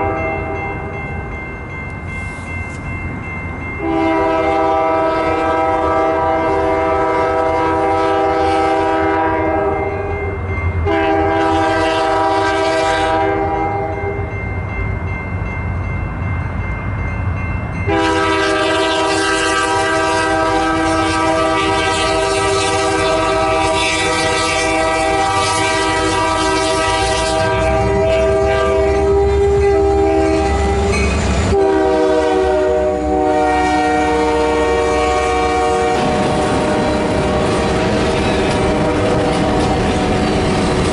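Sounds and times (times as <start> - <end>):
locomotive air horn blasts: 0.0 - 0.6, 3.8 - 10.2, 10.8 - 14.1, 17.9 - 37.6, 38.6 - 39.7.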